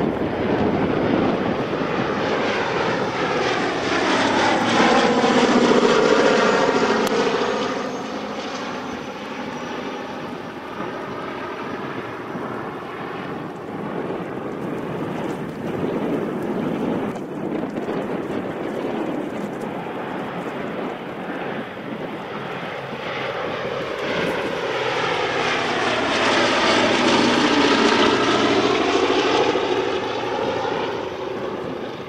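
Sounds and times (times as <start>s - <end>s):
propeller plane flying past: 0.0s - 32.0s.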